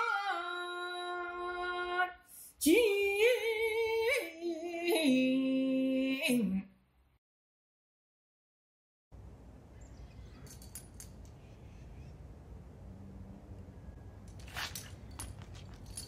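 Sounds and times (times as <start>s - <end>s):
light metallic clinks: 10.4s - 11.4s, 14.2s - 16.0s
feet scuffing on pavement: 14.3s - 16.0s.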